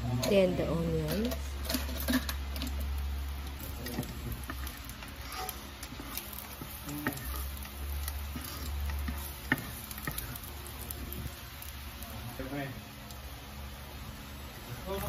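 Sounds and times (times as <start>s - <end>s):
garlic sizzling in oil: 0.0s - 15.0s
spatula stirring and scraping: 1.2s - 12.4s.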